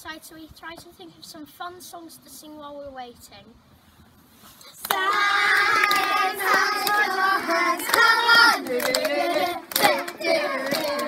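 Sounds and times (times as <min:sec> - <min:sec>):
hand claps: 0:04.8 - 0:11.0
children singing in unison: 0:04.9 - 0:11.0.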